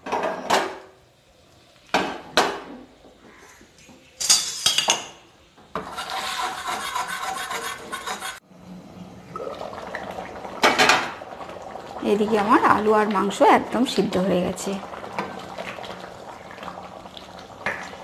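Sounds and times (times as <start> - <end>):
curry bubbling under lid: 8.6 - 18.0.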